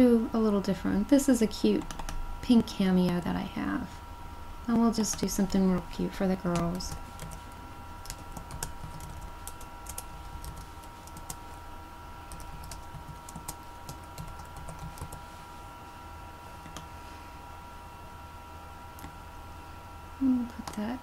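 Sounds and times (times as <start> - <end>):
faint steady hum: 0.0 - 21.0
keyboard typing clicks: 1.8 - 2.2.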